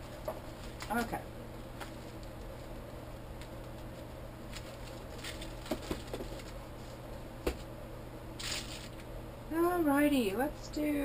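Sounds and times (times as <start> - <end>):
air conditioner hum: 0.0 - 11.0
plastic and paper rustling: 0.1 - 1.1, 3.6 - 6.6.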